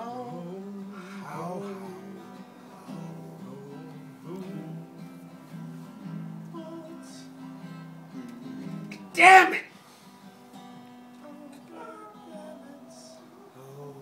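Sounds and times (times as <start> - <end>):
guitar playing: 0.0 - 13.8
person singing wordless notes: 6.5 - 7.4, 8.2 - 9.7, 11.2 - 14.0.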